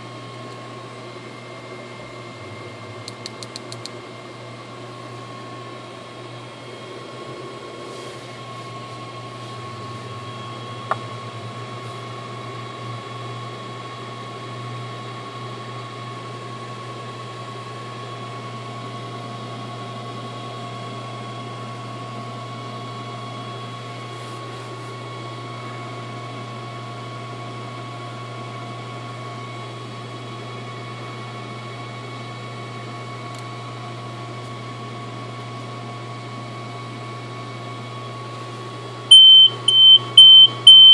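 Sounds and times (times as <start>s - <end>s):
electrical hum and fan noise: 0.0s - 40.9s
sharp click: 3.1s - 4.0s.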